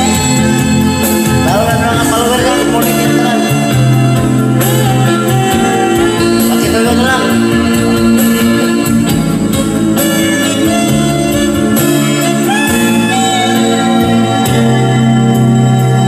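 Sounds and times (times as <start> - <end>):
man singing karaoke: 0.0 - 8.9
music backing track: 0.0 - 16.0.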